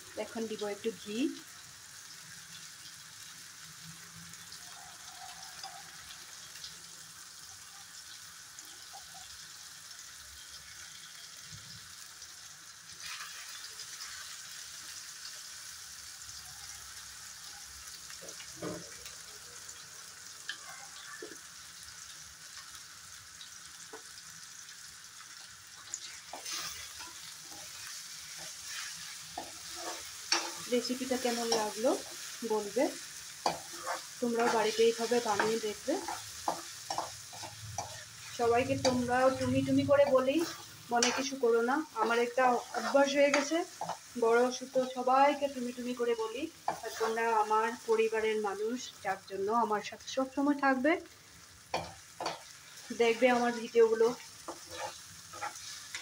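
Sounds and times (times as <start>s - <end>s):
curry sizzling in a pan: 0.0s - 56.0s
spoon scraping and clinking pan: 26.3s - 32.3s, 33.4s - 38.1s, 40.0s - 41.4s, 54.5s - 56.0s.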